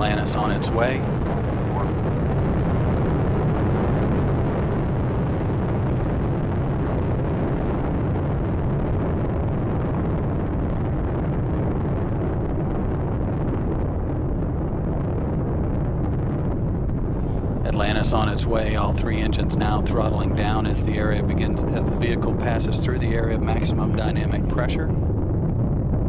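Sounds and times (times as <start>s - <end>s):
rocket engines deep rumble: 0.0s - 26.0s.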